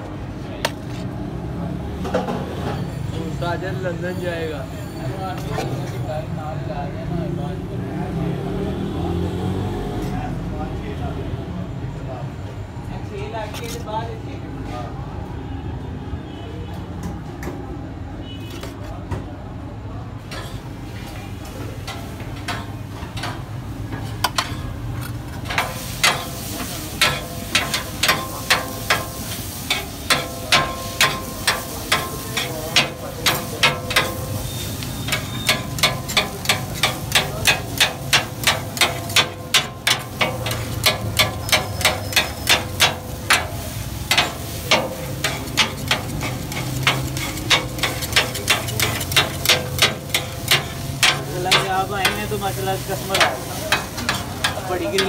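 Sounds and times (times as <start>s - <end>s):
food sizzling: 25.4s - 55.0s.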